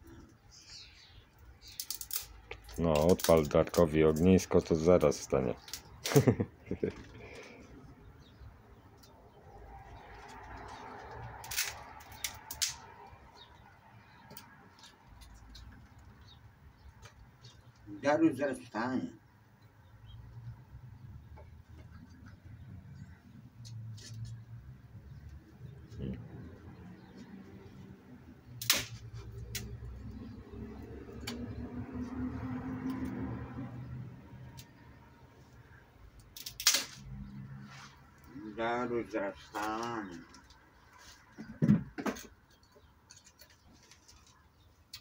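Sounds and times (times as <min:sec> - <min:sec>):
objects clicking and knocking: 0:01.7 - 0:04.4.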